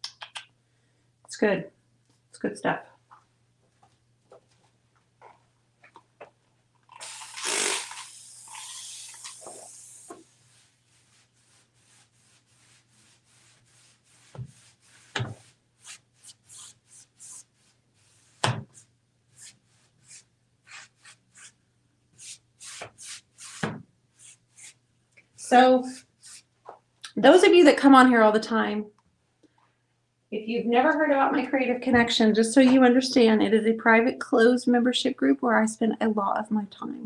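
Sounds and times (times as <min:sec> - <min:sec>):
spray bottle misting water: 0:07.0 - 0:11.1
rag rubbing wooden door: 0:07.4 - 0:21.6, 0:22.2 - 0:24.8.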